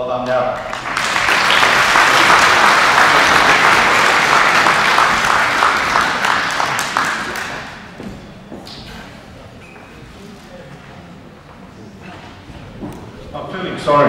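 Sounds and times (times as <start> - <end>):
audience applauding: 0.6 - 8.1.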